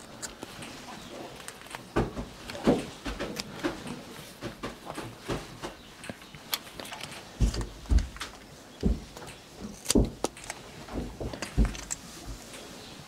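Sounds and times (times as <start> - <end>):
heavy thumps: 7.3 - 12.5.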